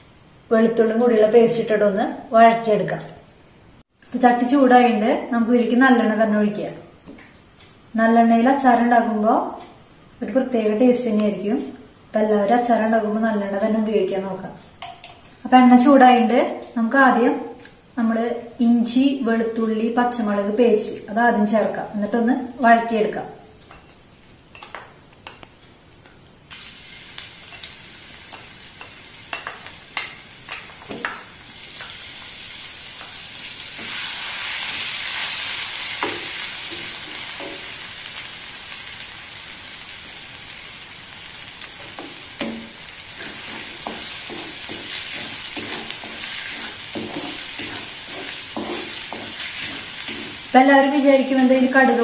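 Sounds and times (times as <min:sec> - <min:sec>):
paste sizzling in hot oil: 0:26.5 - 0:52.0
wooden spatula scraping clay pot: 0:41.8 - 0:50.6.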